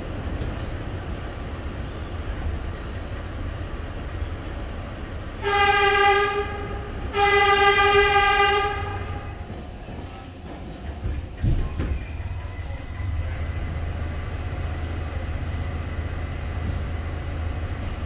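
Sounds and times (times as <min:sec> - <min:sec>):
subway train rumbling: 0:00.0 - 0:18.0
subway train horn blasts: 0:05.4 - 0:09.6.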